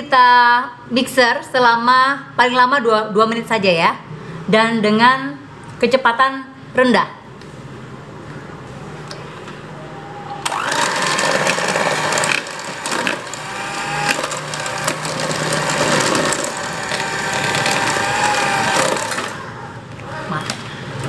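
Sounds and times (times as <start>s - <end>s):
electric hand mixer whining: 10.4s - 20.2s.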